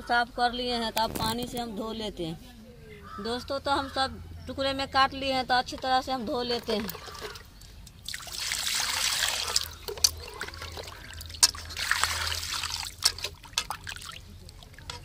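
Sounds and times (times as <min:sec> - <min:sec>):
water pouring into metal pan: 0:08.1 - 0:15.0.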